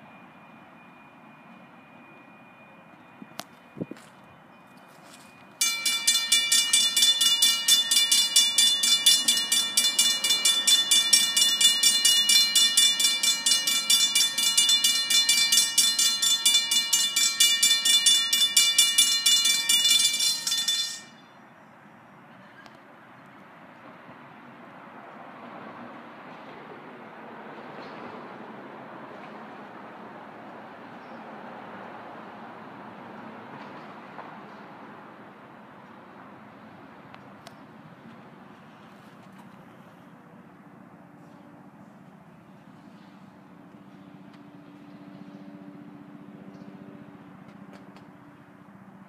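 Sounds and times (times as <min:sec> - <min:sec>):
railroad crossing bells ringing: 0:00.0 - 0:22.5.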